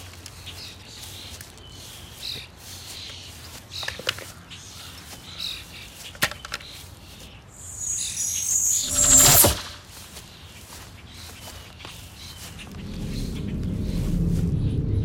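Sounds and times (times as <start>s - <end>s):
birds chirping: 0.4s - 15.0s
shimmering sparkle sound effect: 7.6s - 9.8s
sharp click: 7.8s - 9.8s.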